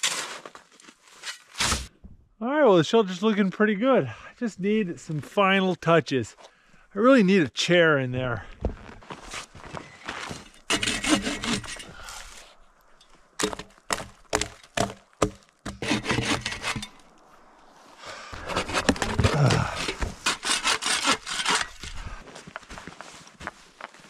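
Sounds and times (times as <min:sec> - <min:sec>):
bow saw cutting wood: 0:10.7 - 0:12.0, 0:15.7 - 0:17.1, 0:18.4 - 0:21.9.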